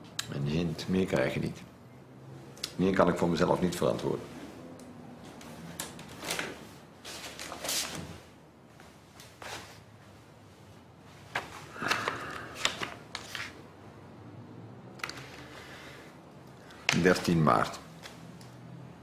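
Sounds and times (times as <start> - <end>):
paper rustling: 11.2 - 13.7.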